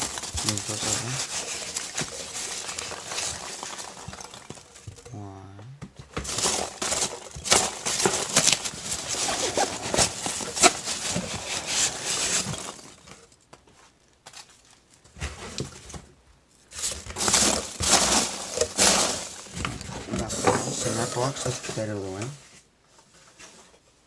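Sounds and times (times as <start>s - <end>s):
packing peanuts rustling: 0.0s - 5.4s, 6.1s - 13.4s, 16.7s - 22.4s.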